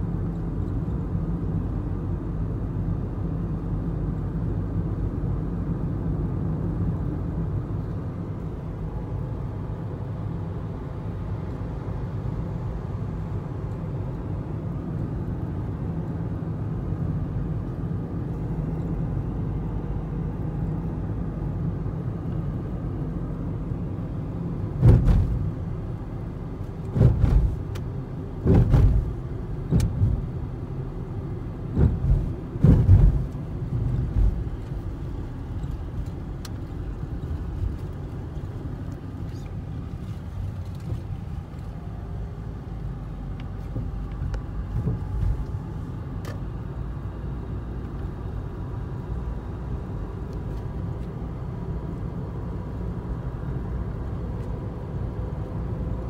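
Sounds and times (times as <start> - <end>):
car driving rumble: 0.0 - 56.0
loud short thumps: 24.8 - 25.4, 28.4 - 29.1, 31.8 - 33.3.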